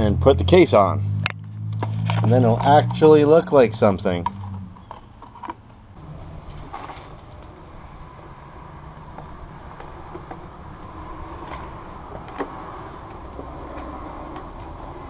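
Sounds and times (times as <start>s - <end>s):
low background rumble: 3.8s - 15.0s.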